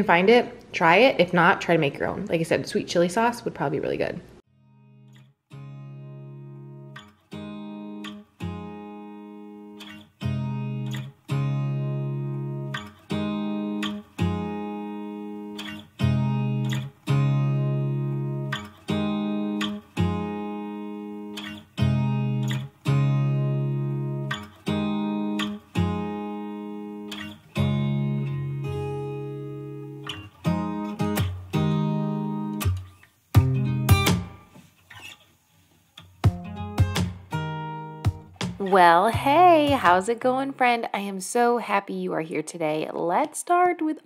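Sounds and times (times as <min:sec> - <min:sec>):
acoustic guitar strumming chords: 0:04.5 - 0:35.2, 0:36.0 - 0:40.8.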